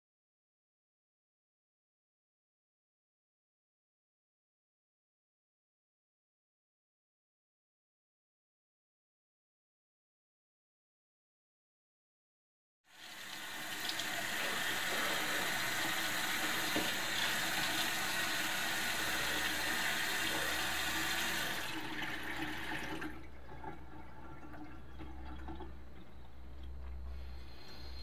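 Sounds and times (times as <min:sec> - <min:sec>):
low steady hum: 0:13.2 - 0:28.0
tap running into sink: 0:13.3 - 0:23.8.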